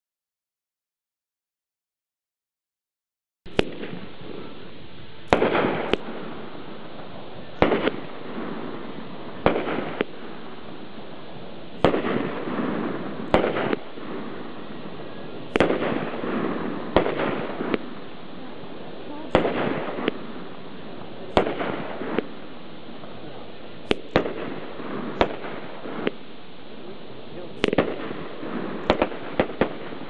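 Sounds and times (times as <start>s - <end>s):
firework shells launching and bursting: 3.5s - 4.6s, 5.2s - 26.4s, 27.4s - 30.0s.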